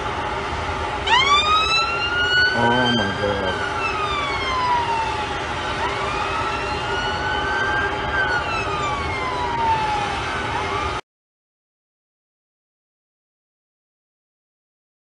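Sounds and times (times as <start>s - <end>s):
city noise hum: 0.0s - 11.0s
emergency siren wailing: 0.0s - 11.0s.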